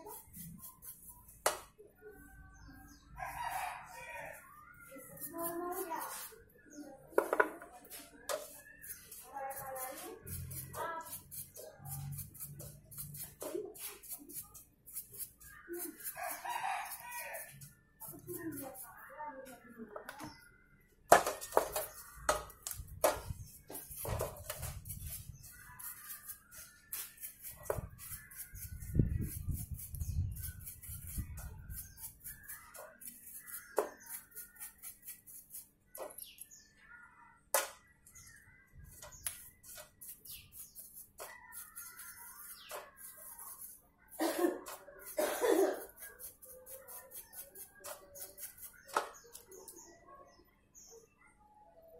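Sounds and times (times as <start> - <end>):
birds chirping: 0.0 - 51.9
scrubbing strokes: 23.4 - 35.7, 39.2 - 48.9.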